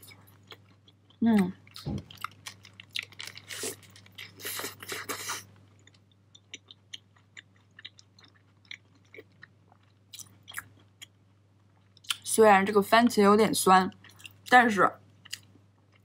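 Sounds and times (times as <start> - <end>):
person chewing food: 0.1 - 12.2, 14.0 - 14.5, 15.2 - 16.0.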